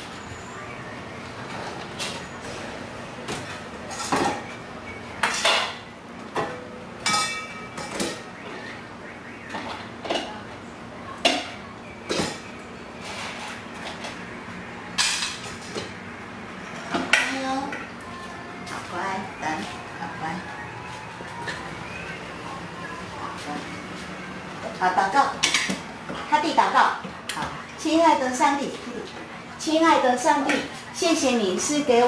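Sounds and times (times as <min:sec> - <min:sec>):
dishes and utensils clattering: 0:03.3 - 0:04.5, 0:05.2 - 0:08.3, 0:09.5 - 0:10.4, 0:11.2 - 0:14.2, 0:15.0 - 0:16.0, 0:16.7 - 0:18.0, 0:25.4 - 0:26.3.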